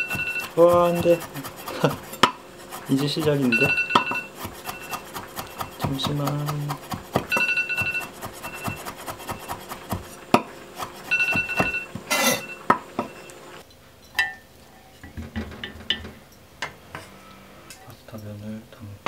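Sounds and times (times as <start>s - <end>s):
utensils clinking against dishes: 0.0s - 15.2s.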